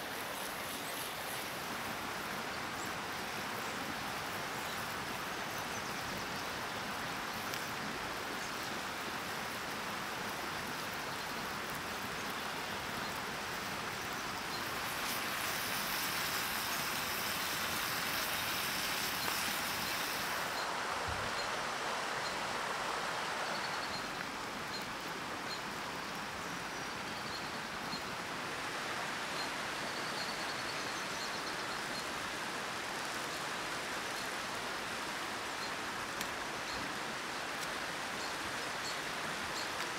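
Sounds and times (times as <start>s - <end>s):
burgers sizzling in a pan: 14.1s - 20.6s.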